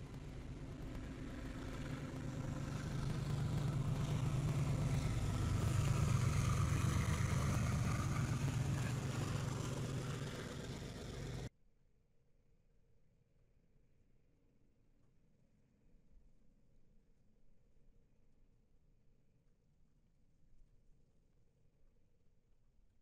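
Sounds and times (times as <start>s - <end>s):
diesel locomotive engines droning: 0.0s - 11.5s.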